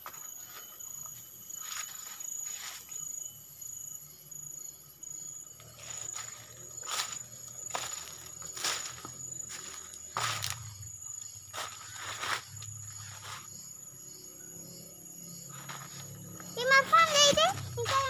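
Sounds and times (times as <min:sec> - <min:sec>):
insects trilling: 0:00.0 - 0:18.0
rustling through undergrowth: 0:05.6 - 0:13.5.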